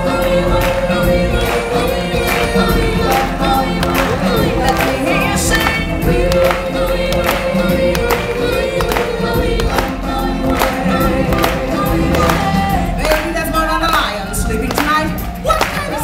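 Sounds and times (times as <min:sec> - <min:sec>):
choir singing: 0:00.0 - 0:14.2
steady beat: 0:00.5 - 0:13.4.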